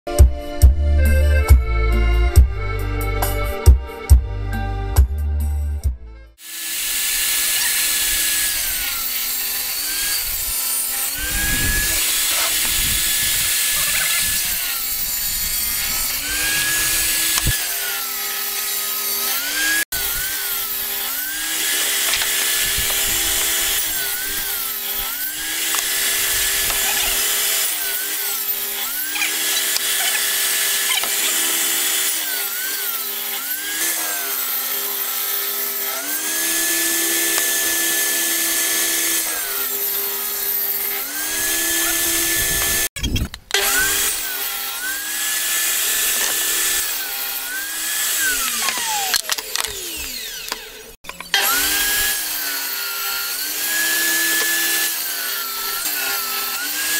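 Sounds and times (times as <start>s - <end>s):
table saw whining: 6.3s - 56.9s
saw cutting hiss: 6.4s - 42.9s.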